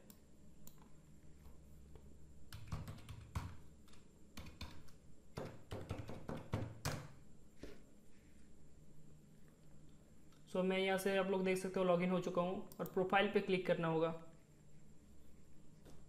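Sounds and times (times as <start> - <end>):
typing on laptop keyboard: 2.5 - 7.1.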